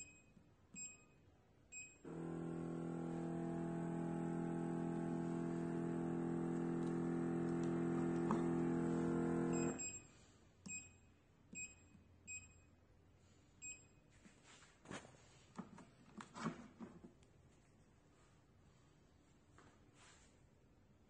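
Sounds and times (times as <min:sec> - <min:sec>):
short electronic beeps: 0:00.0 - 0:02.0, 0:09.5 - 0:12.7, 0:13.6 - 0:14.0
machine humming: 0:02.0 - 0:09.8.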